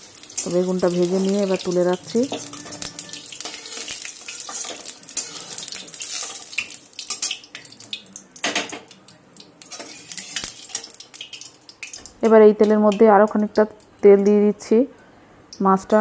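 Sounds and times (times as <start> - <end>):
hot oil sizzling: 0.0 - 13.8
metal spatula scraping wok: 2.1 - 6.6, 9.6 - 11.0.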